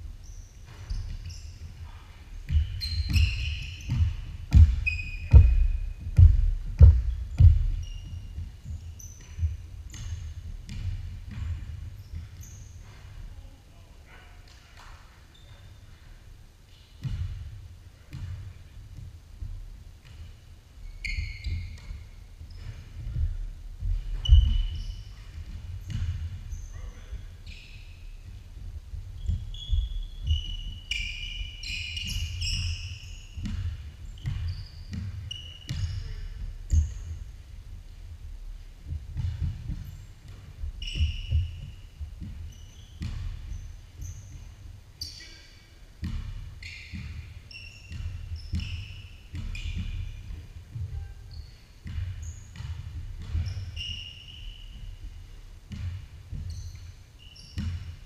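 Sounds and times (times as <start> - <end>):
sneakers squeaking on floor: 0.0 - 58.0
basketball dribbling on hardwood: 0.7 - 13.2, 17.0 - 18.6, 21.4 - 27.3, 31.4 - 37.2, 38.8 - 44.7, 46.0 - 53.7, 54.8 - 57.0, 57.6 - 58.0.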